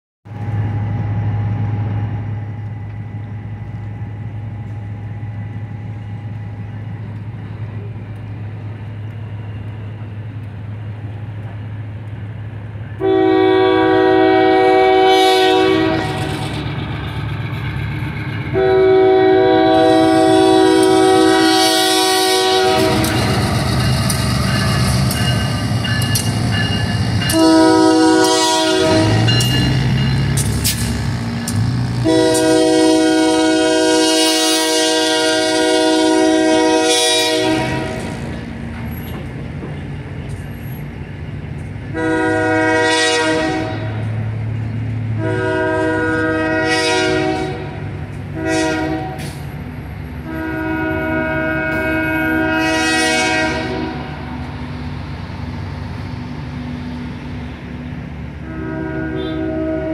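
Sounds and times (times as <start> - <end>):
diesel locomotive running: 0.3 - 59.9
train rumbling across bridge: 0.3 - 59.9
train air horn blasts: 13.0 - 16.6, 18.5 - 24.0, 26.9 - 30.3, 31.9 - 38.2, 41.9 - 44.2, 45.1 - 49.5, 50.2 - 54.3, 58.4 - 59.9.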